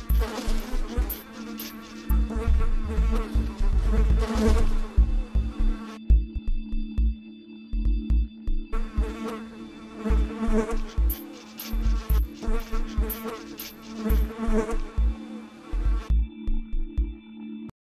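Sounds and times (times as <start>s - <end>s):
fly buzzing: 0.0s - 6.0s, 8.8s - 16.2s
electronic music with low drone: 0.0s - 17.7s.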